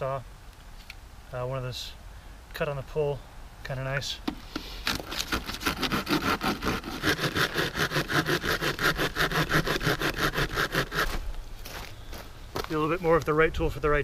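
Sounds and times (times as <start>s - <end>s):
folding saw cutting a branch: 4.3s - 11.3s.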